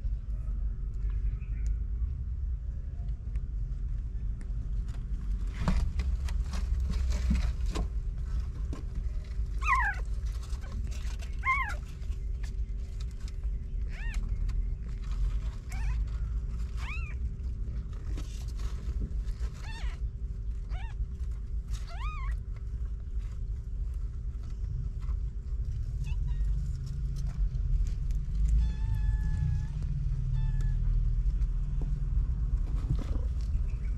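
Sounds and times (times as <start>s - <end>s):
low background rumble: 0.0s - 33.9s
kittens mewing: 9.5s - 11.9s, 13.8s - 14.3s, 15.6s - 17.2s, 19.5s - 22.4s.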